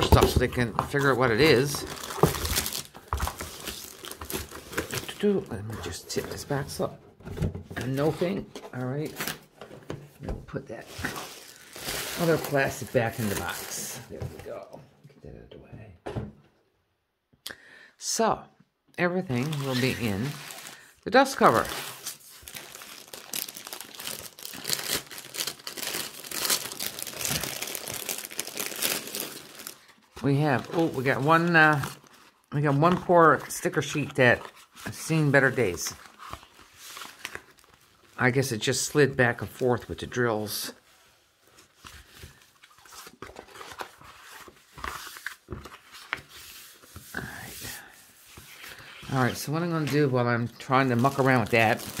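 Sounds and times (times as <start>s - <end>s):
plastic wrapping crinkling: 1.0s - 5.6s, 10.9s - 14.6s, 19.3s - 33.2s, 35.5s - 38.2s, 50.6s - 52.0s.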